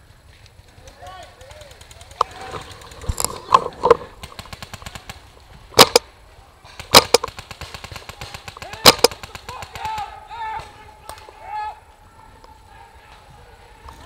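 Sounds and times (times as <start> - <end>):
distant paintball shots patter: 0.0 - 11.4
loud paintball marker pops: 5.8 - 6.0.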